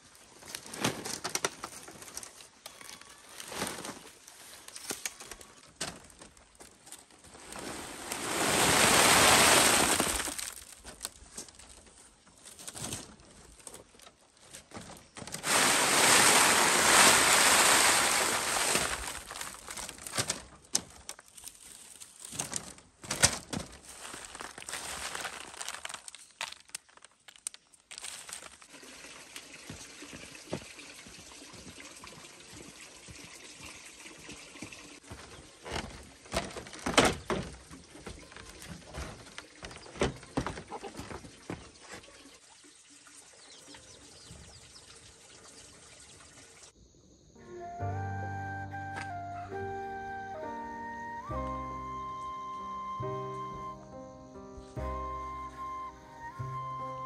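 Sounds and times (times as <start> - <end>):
dried slices pouring into basket: 7.3 - 10.9, 15.3 - 20.5, 23.7 - 28.8.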